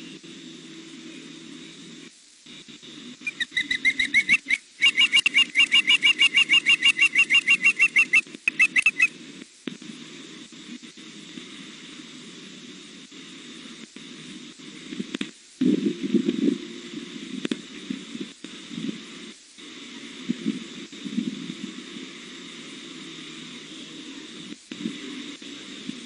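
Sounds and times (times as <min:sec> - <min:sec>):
osprey chirping whistles: 0:03.2 - 0:09.1.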